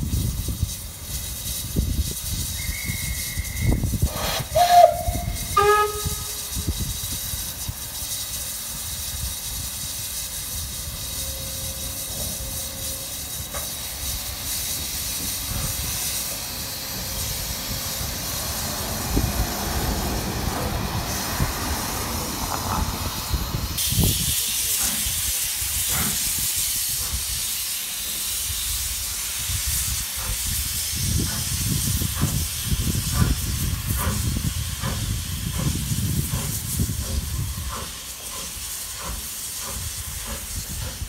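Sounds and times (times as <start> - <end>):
steam hissing: 0.0 - 41.0
thin high whistle: 2.4 - 6.9, 10.8 - 13.7
loud steam whistle blasts: 2.4 - 7.1, 10.3 - 18.0.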